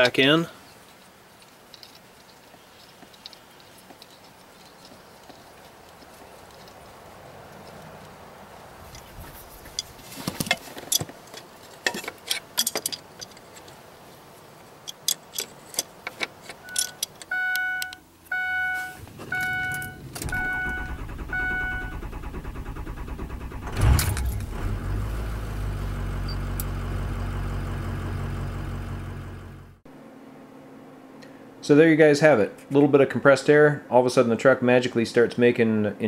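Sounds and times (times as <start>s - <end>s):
clicks and rattles of keys: 14.9s - 17.3s
diesel engine cranking: 14.9s - 29.8s
electronic chime beeps: 17.3s - 21.9s
diesel engine idling: 18.3s - 29.8s.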